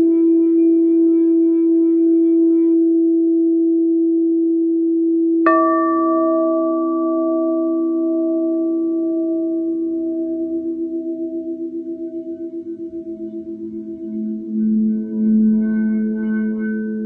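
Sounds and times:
singing bowl humming: 0:05.1 - 0:17.0
singing bowl struck ringing: 0:05.5 - 0:17.0.

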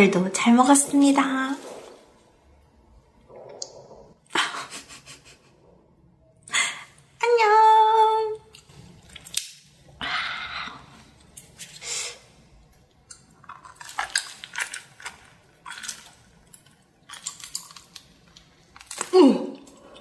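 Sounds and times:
wet sticky chewing: 0:12.7 - 0:20.0.

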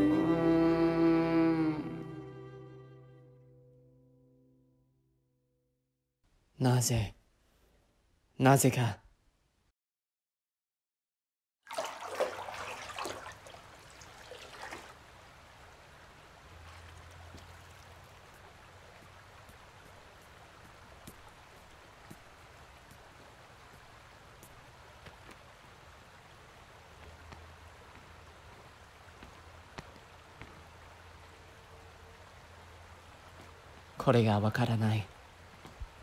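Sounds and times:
faint background hiss: 0:12.6 - 0:36.0.

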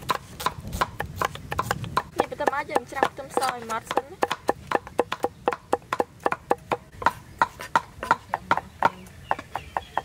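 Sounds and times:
cleaver chopping on wooden block: 0:00.0 - 0:10.0.

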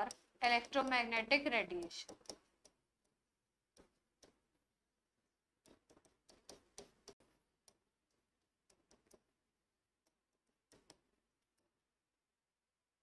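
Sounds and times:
pen tapping on writing board: 0:01.8 - 0:02.8, 0:05.6 - 0:07.8.

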